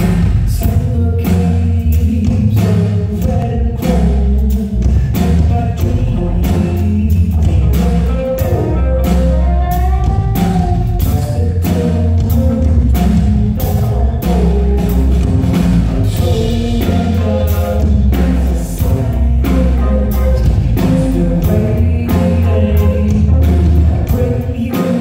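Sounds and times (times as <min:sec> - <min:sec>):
drum kit beat: 0:00.0 - 0:25.0
heavy bass line: 0:00.0 - 0:25.0
keyboard: 0:00.0 - 0:25.0
man singing: 0:00.0 - 0:25.0
electric guitar: 0:04.6 - 0:25.0.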